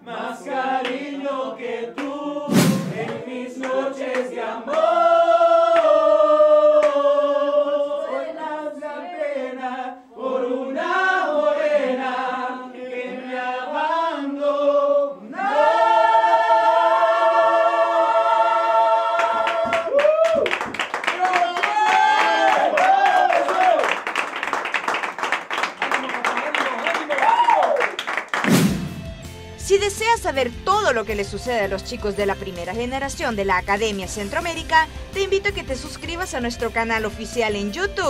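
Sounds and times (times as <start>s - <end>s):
group singing without instruments: 0.0s - 19.9s
sharp thump: 2.5s - 3.2s, 28.4s - 29.2s
hand claps: 19.2s - 28.8s.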